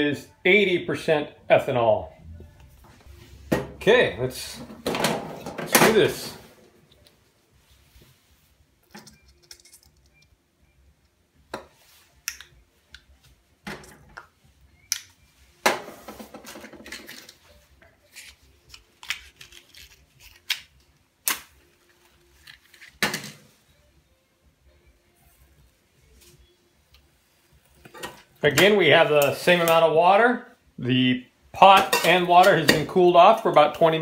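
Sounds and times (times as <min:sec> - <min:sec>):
small objects clicking and knocking: 0:08.9 - 0:10.3.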